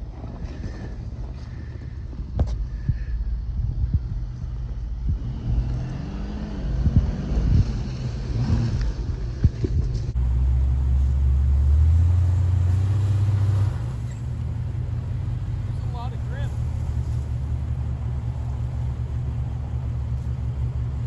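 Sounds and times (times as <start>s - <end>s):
engine droning under load: 0.0s - 21.0s
off-road engine rumble: 0.0s - 21.0s.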